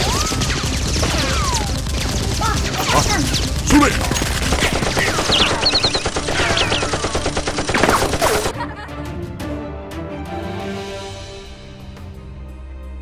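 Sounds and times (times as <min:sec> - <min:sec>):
rapid gunfire: 0:00.0 - 0:08.5.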